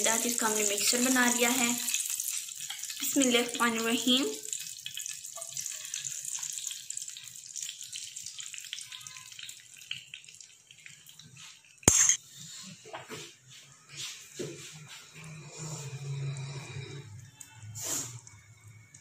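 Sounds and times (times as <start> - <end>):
omelette sizzling in oil: 0.0 - 12.1, 16.4 - 19.0.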